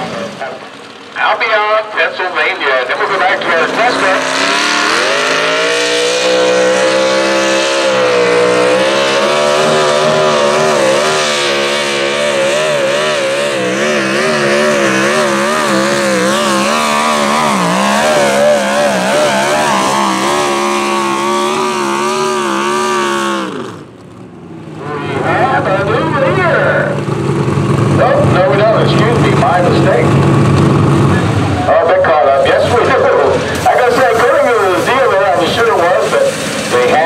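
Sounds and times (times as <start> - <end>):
tractor engine at full throttle: 0.0 - 37.0.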